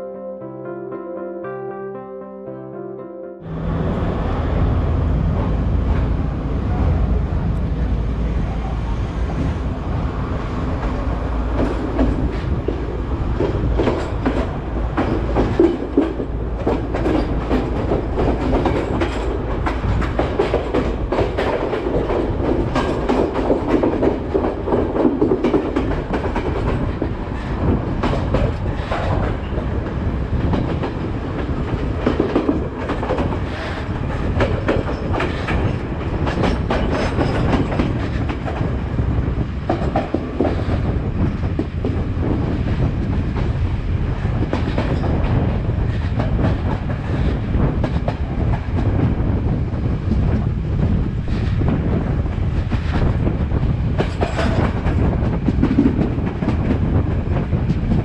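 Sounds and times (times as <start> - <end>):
train carriage rumble: 3.5 - 58.0
wheels clattering over rail joints: 10.8 - 38.8, 53.9 - 58.0.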